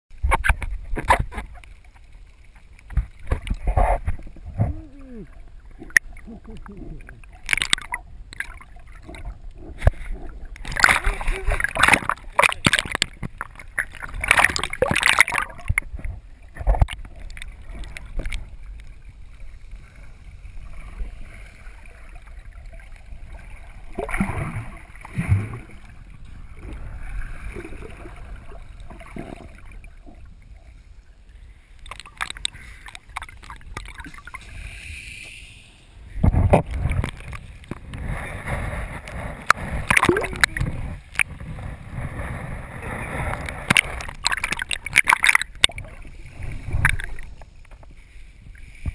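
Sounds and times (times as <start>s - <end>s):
water sloshing and gurgling: 0.1s - 34.9s, 35.8s - 48.9s
splashing water: 2.9s - 19.0s, 31.8s - 34.6s, 39.2s - 41.4s, 43.6s - 47.8s.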